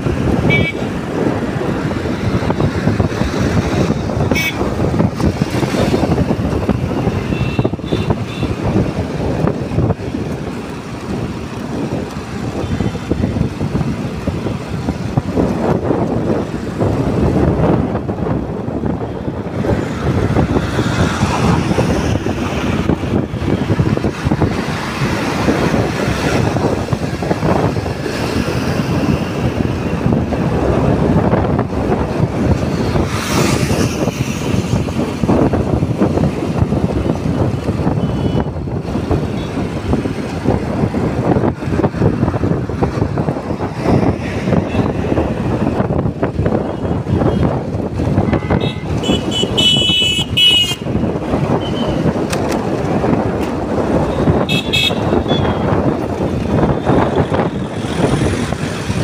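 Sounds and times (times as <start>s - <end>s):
road noise: 0.0s - 59.0s
wind buffeting microphone: 0.0s - 59.0s.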